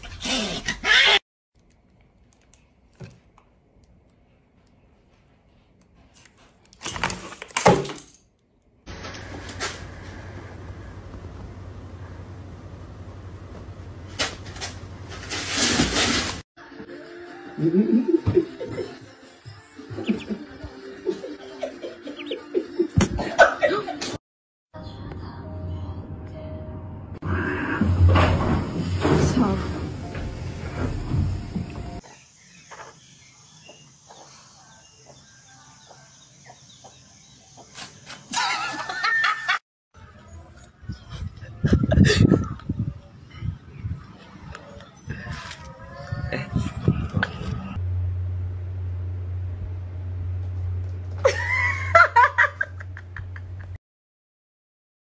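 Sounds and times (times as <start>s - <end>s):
chicken clucking: 22.1s - 22.6s.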